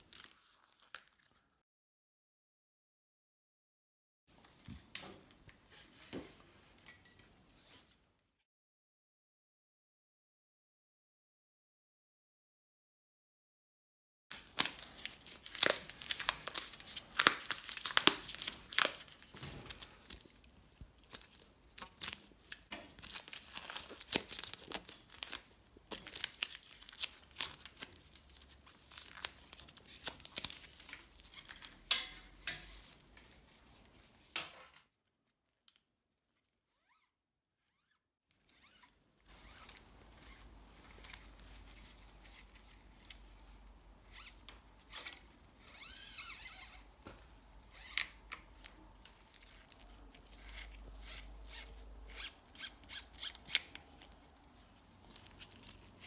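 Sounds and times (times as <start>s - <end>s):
tape peeling with sharp crackles: 14.3s - 33.3s, 37.7s - 56.0s.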